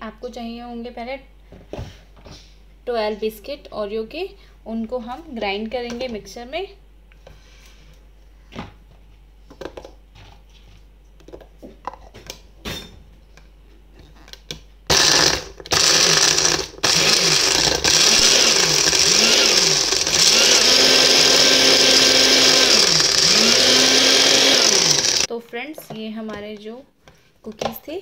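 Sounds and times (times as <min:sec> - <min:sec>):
grinder motor running: 0:14.9 - 0:25.3.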